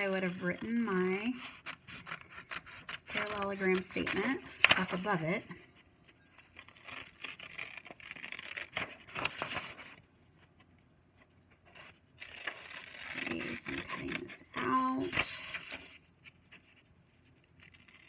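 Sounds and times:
scissors cutting paper: 0.0 - 5.2, 6.5 - 9.9, 11.7 - 15.9, 17.6 - 18.0.

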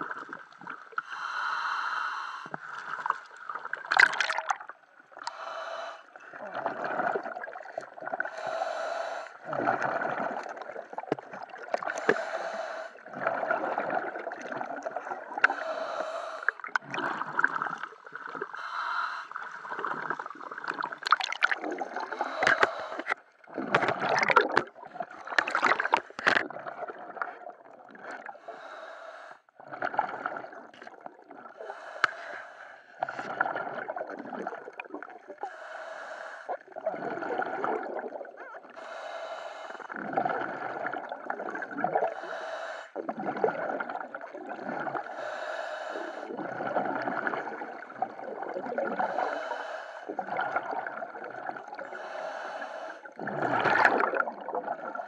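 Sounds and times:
exhaled bubbles gurgling: 0.0 - 1.7, 2.6 - 18.6, 19.3 - 28.8, 29.6 - 31.9, 33.0 - 35.6, 36.5 - 55.0
regulator inhale hiss: 1.0 - 2.9, 15.5 - 16.6, 18.6 - 19.5, 22.2 - 23.2, 45.1 - 46.3, 49.2 - 50.1, 51.9 - 53.1.

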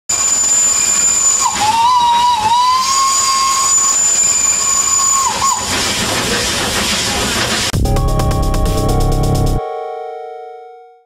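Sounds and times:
steam whistle blowing: 0.1 - 5.9
loud steam hiss: 0.1 - 7.7.

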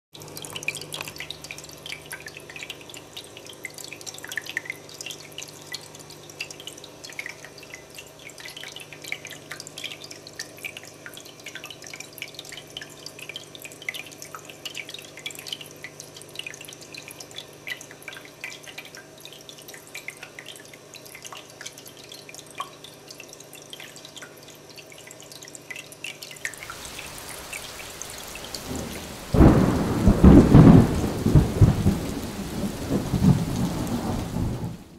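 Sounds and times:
faint steady hum: 0.2 - 34.9
fountain water dripping: 0.2 - 34.9
hiss: 26.6 - 29.8.

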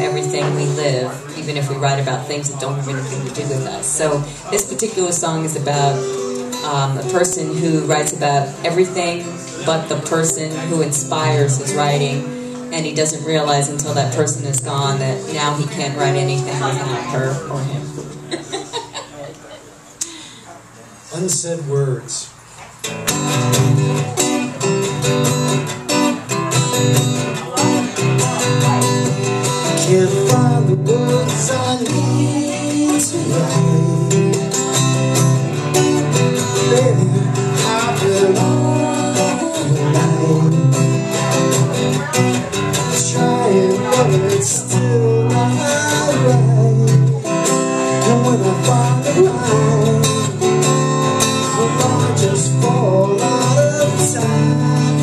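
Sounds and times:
acoustic guitar strumming: 0.0 - 20.3, 21.1 - 55.0
man singing: 29.4 - 55.0.

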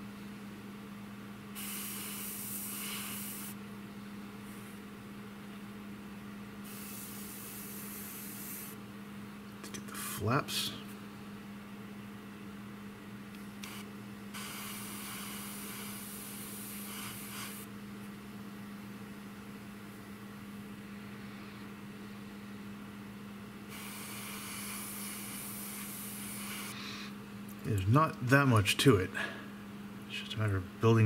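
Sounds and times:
steady low hum: 0.0 - 31.0
airbrush spraying hiss: 1.6 - 3.6, 6.6 - 8.8, 13.6 - 17.7, 23.7 - 26.8
brief air puff: 1.6 - 3.6, 6.6 - 8.8, 13.6 - 17.7, 23.7 - 27.1.

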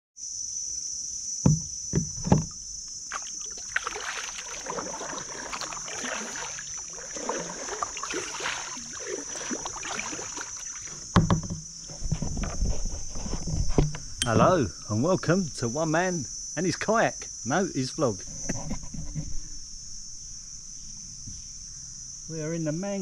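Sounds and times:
heavy knocks: 1.5 - 2.6
kayak paddle splashing: 2.2 - 11.2
high-pitched hiss: 13.8 - 23.0.

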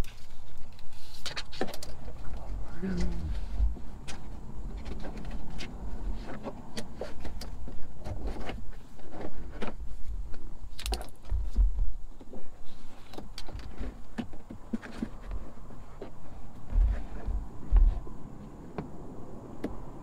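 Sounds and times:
clicks and knocks of bungee cords: 10.7 - 12.4.

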